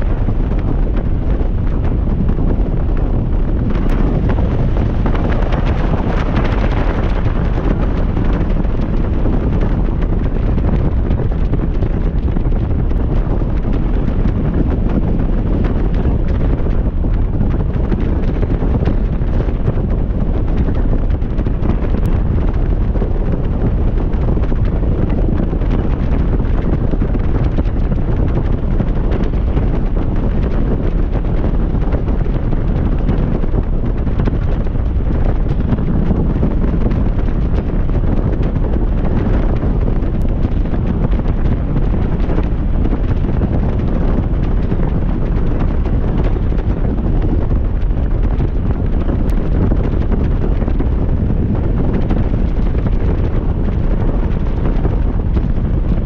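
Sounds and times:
wind buffeting microphone: 0.0 - 56.0.

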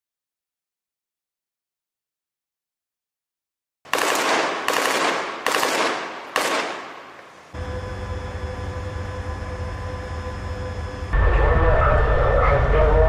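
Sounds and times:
loud gunshots with echo: 3.9 - 7.5
tracked vehicle engine running: 7.6 - 13.0.

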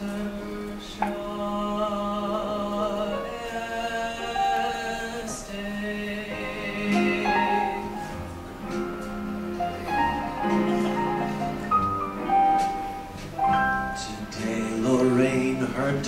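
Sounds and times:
person singing long notes: 0.0 - 11.6
instrumental accompaniment: 3.2 - 16.0.

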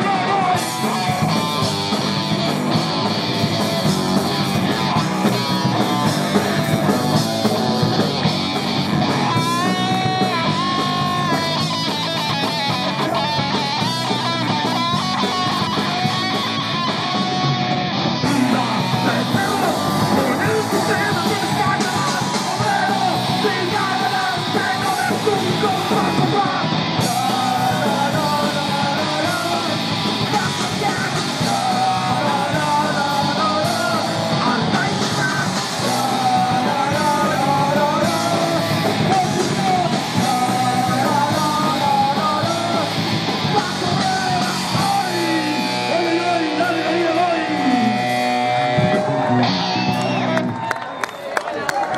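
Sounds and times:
singer shouting vocals: 0.0 - 1.7, 18.2 - 50.4
punk rock band playing: 0.0 - 51.1.

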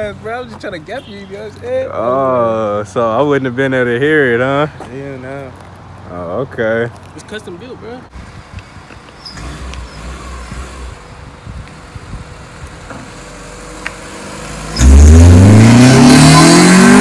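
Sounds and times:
car engine revving: 13.1 - 17.0.

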